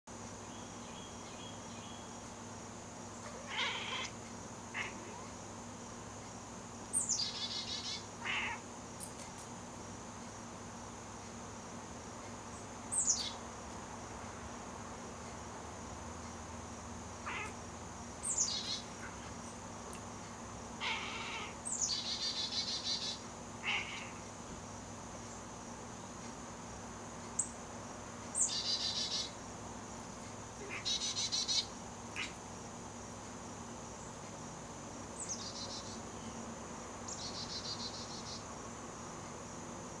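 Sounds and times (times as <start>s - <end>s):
bird chirps: 7.0s - 8.1s, 12.9s - 13.4s, 18.2s - 19.3s, 21.6s - 23.2s, 28.4s - 29.4s, 30.6s - 32.4s, 37.1s - 38.4s.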